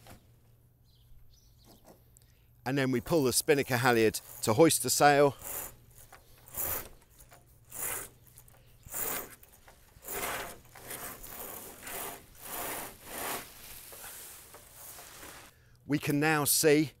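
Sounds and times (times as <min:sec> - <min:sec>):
rope rasping through blocks: 0:03.8 - 0:15.5.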